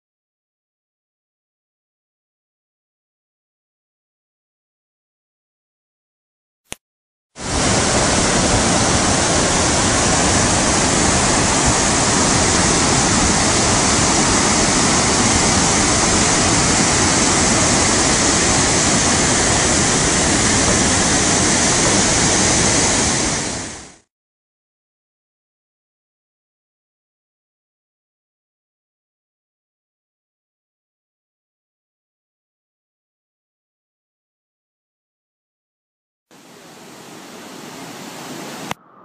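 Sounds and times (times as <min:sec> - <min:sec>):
river rushing in flood: 0:07.4 - 0:24.0, 0:36.4 - 0:38.8.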